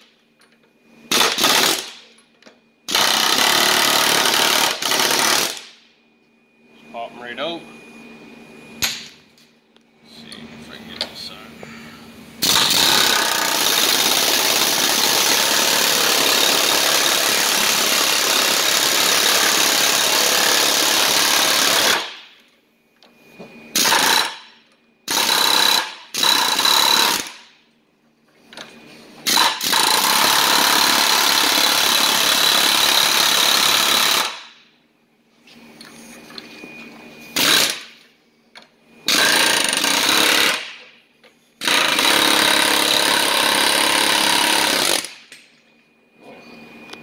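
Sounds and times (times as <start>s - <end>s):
pneumatic air hammer hammering: 1.1s - 2.2s, 2.9s - 5.8s, 12.4s - 22.4s, 23.7s - 27.6s, 28.6s - 34.6s, 37.3s - 38.0s, 39.0s - 41.0s, 41.6s - 45.5s.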